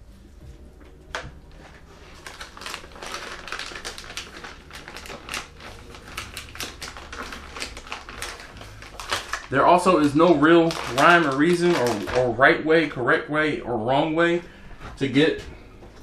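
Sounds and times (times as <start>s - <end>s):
plastic bag crinkling: 1.1s - 12.6s.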